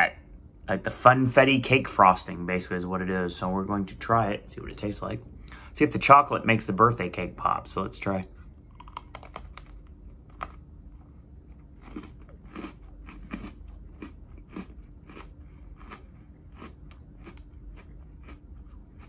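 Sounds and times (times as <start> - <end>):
cookie crunching while chewed: 8.6 - 19.0.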